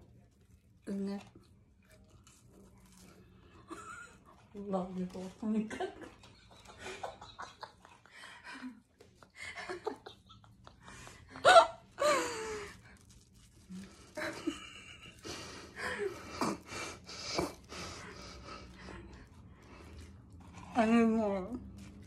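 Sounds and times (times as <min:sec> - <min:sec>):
muffled laughter: 0:06.0 - 0:12.2.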